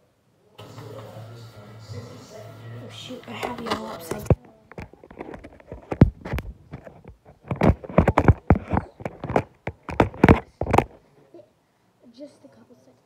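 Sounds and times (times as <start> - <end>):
phone handling thumps and scrapes: 3.4 - 11.0.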